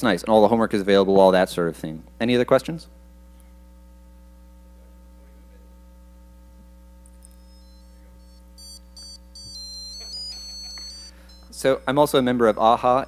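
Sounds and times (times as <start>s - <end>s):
electrical hum: 0.0s - 13.0s
high-pitched electronic beeps: 7.2s - 13.0s.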